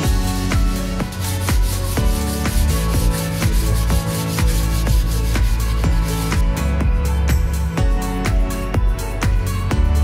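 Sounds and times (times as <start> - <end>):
sandpaper rasping on wood: 0.0 - 6.4
electronic music with beat: 0.0 - 10.0.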